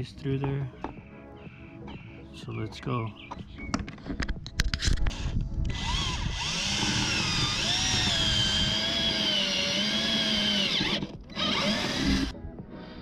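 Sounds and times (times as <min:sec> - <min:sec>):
cordless drill motor whining: 0:05.7 - 0:12.3.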